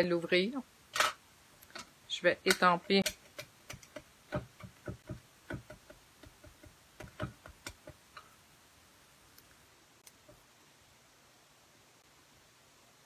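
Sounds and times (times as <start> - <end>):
stamp block tapping on stamp pad: 3.7 - 8.0.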